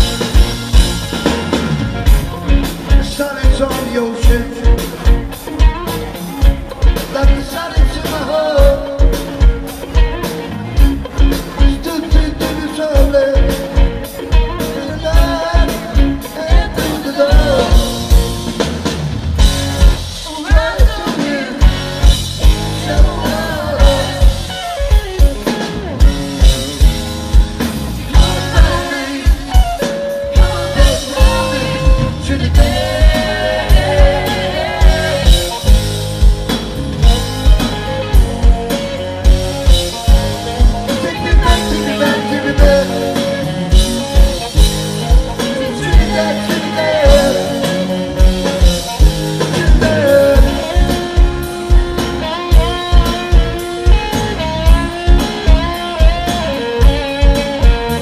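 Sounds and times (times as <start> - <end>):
live rock band playing: 0.0 - 58.0
person singing lead vocal: 2.9 - 5.3, 6.8 - 9.9, 11.3 - 18.4, 20.2 - 25.0, 28.1 - 36.0, 40.8 - 54.0.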